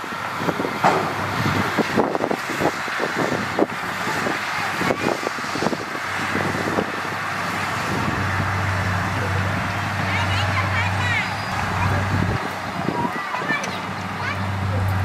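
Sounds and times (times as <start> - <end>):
diesel machinery running: 0.0 - 15.0.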